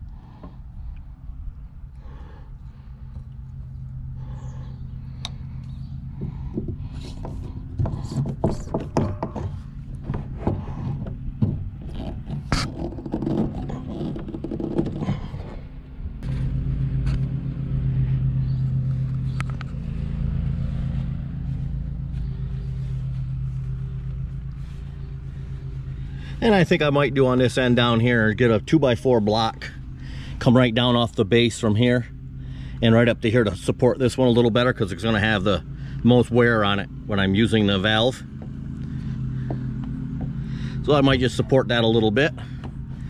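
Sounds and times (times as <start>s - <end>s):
low machine hum: 0.0s - 43.0s
plastic pipe knocking and clattering: 6.2s - 15.4s.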